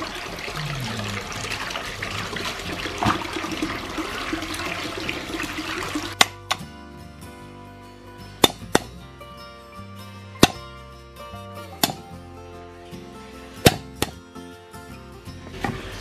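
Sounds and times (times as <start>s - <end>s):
tap water pouring into metal basin: 0.0s - 6.4s
knife chopping on wooden block: 11.8s - 12.0s.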